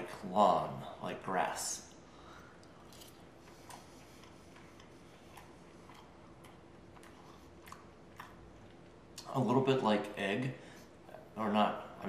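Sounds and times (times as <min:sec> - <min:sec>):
person chewing: 0:02.5 - 0:09.3.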